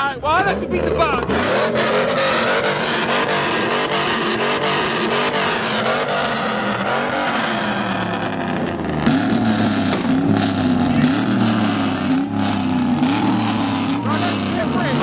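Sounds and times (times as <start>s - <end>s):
truck engine with loud exhaust: 0.0s - 15.0s.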